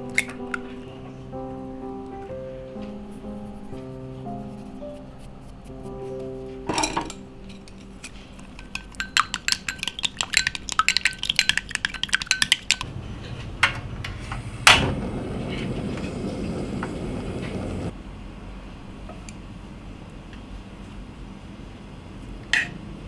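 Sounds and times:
eggs beaten in glass bowl: 0:08.5 - 0:12.9
gas burner hissing: 0:13.5 - 0:17.9.

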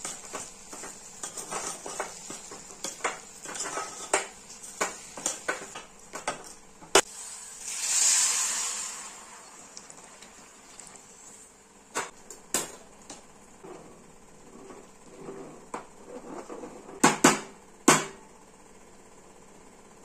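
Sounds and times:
metal spatula scraping a pot: 0:00.0 - 0:04.3
water pouring into a pot: 0:07.2 - 0:11.3.

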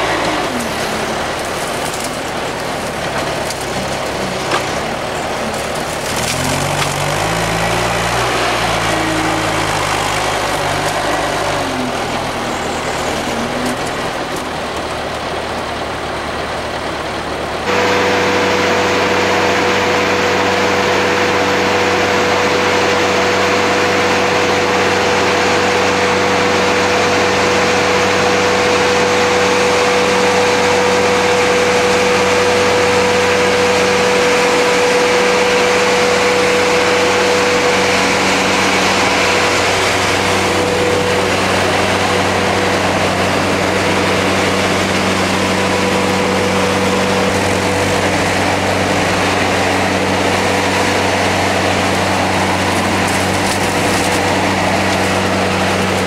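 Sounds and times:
diesel engine running: 0:00.0 - 0:56.0
hydraulic whine: 0:00.0 - 0:56.0.

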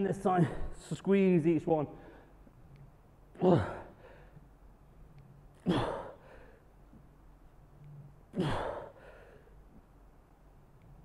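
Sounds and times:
man exhaling with effort: 0:05.6 - 0:06.6, 0:08.3 - 0:09.4.

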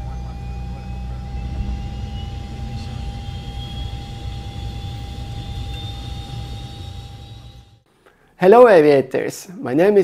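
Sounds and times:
low engine rumble: 0:00.0 - 0:07.8
faint rising whine: 0:00.0 - 0:07.9
steady tone: 0:00.0 - 0:07.9.

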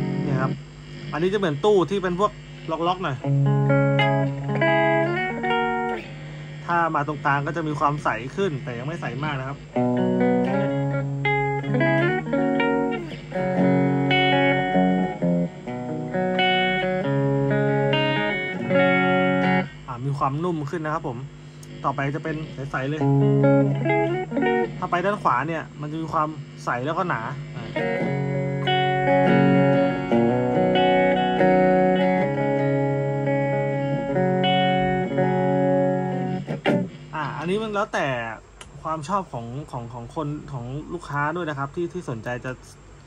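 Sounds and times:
clean electric guitar chords: 0:00.0 - 0:00.7, 0:02.9 - 0:06.5, 0:08.0 - 0:19.9, 0:22.4 - 0:25.7, 0:27.4 - 0:37.5.

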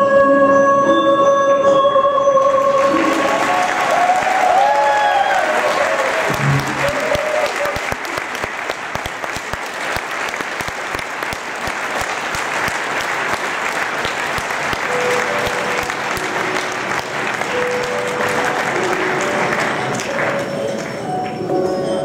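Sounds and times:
dance music: 0:00.0 - 0:04.2, 0:05.7 - 0:07.7, 0:14.6 - 0:22.0
audience clapping: 0:02.4 - 0:21.7.

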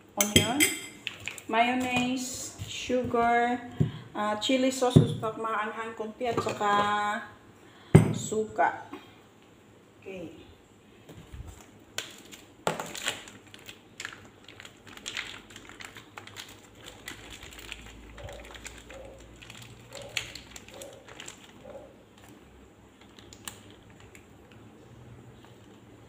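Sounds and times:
plastic sachet crinkling: 0:11.5 - 0:22.4, 0:23.0 - 0:24.3.

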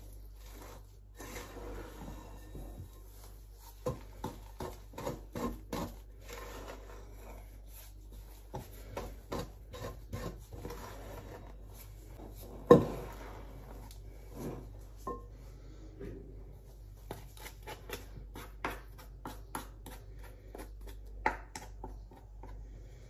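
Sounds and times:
wooden spoon scraping bowl: 0:00.0 - 0:15.4.

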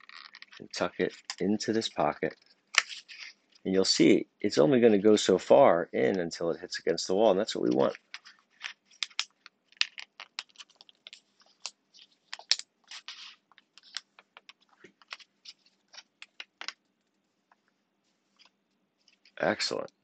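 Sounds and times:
paper folding and creasing: 0:00.0 - 0:03.7, 0:07.6 - 0:19.5.

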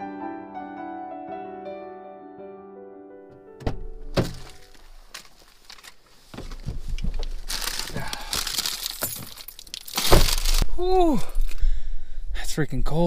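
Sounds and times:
clothing rustling: 0:04.2 - 0:10.6.

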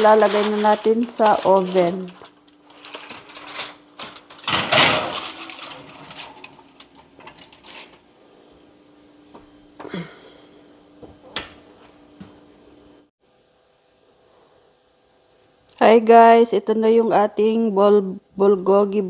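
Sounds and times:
aluminium foil crinkling: 0:00.0 - 0:08.1
oven door shutting: 0:03.4 - 0:06.6.

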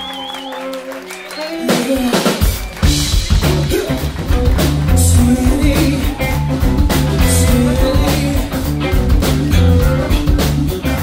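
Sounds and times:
soul-funk band playing: 0:00.0 - 0:11.0
man singing: 0:01.4 - 0:02.5, 0:03.4 - 0:04.2, 0:04.9 - 0:11.0.

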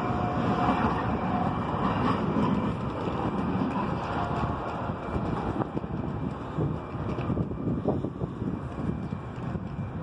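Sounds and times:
light rail train rumble: 0:00.0 - 0:10.0
wind buffeting microphone: 0:00.0 - 0:10.0.

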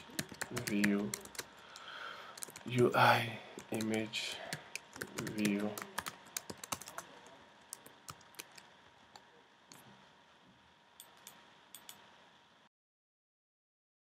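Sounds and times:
keyboard keystrokes clicking: 0:00.0 - 0:01.5, 0:04.7 - 0:07.0.

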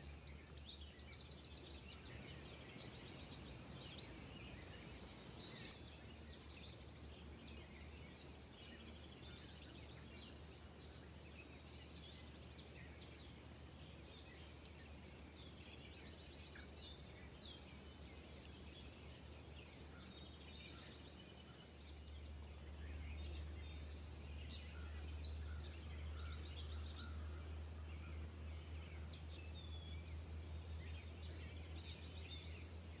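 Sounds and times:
small birds chirping: 0:00.0 - 0:33.0
low steady rumble: 0:21.8 - 0:33.0.

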